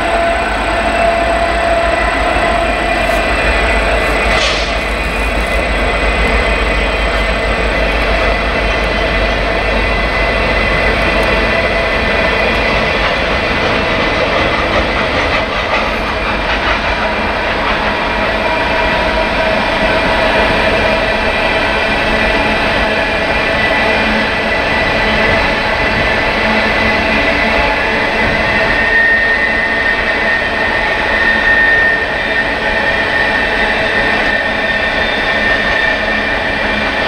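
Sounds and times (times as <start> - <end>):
freight train rolling past: 0.0 - 37.0.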